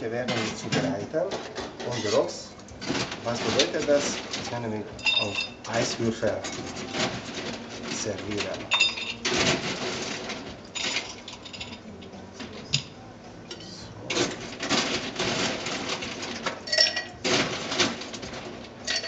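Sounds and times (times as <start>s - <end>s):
glass ringing: 5.0s - 5.6s, 8.7s - 9.3s, 16.7s - 17.2s
ice cubes clinking in glass: 5.0s - 11.9s, 14.1s - 19.0s.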